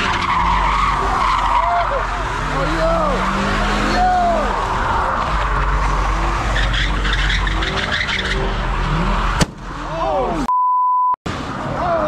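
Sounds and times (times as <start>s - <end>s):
car engine: 0.0s - 10.5s
tires screeching: 0.0s - 10.5s
high beep: 10.4s - 11.2s.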